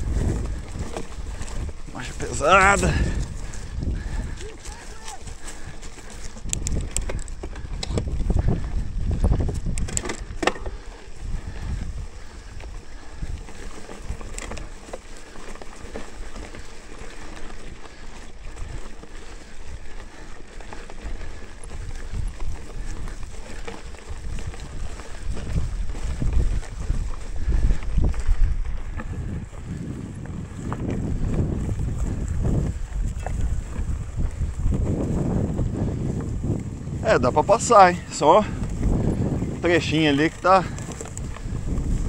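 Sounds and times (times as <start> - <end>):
bike clicks and rattles: 0.0 - 42.0
wind and ground rumble: 0.0 - 42.0.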